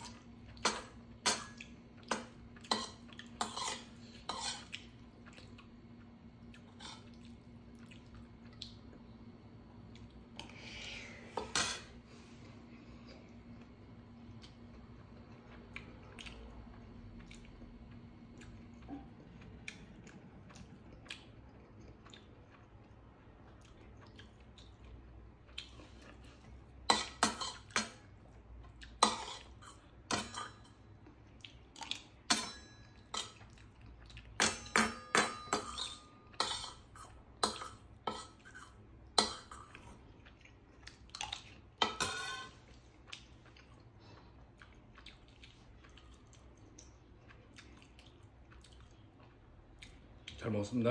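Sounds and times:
metal spoon scraping steel bowl: 0:41.8 - 0:42.6.

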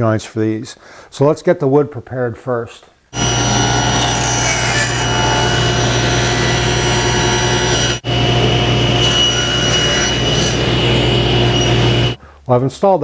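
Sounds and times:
table saw ripping board: 0:03.2 - 0:12.2.

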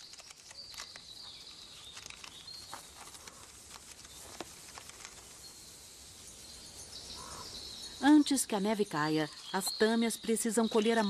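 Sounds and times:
chipmunk gnawing pine cone: 0:00.0 - 0:05.4.

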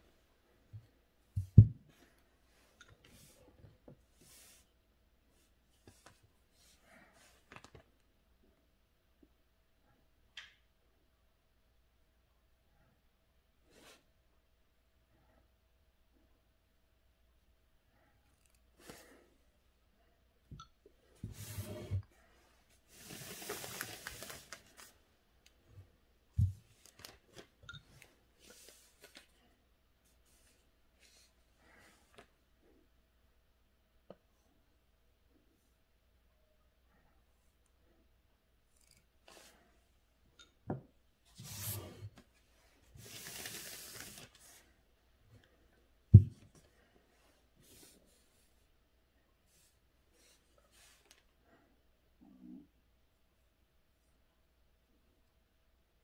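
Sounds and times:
thump: 0:01.4 - 0:01.8
paper sliding and rustling: 0:21.2 - 0:22.0, 0:22.8 - 0:25.0, 0:28.4 - 0:29.4, 0:41.3 - 0:44.8.

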